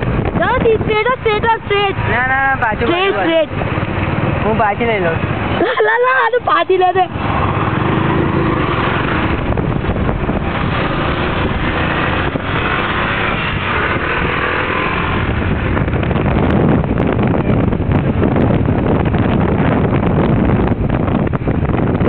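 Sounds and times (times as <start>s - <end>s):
motorcycle engine running: 0.0s - 5.7s, 6.7s - 22.0s
road noise: 0.0s - 22.0s.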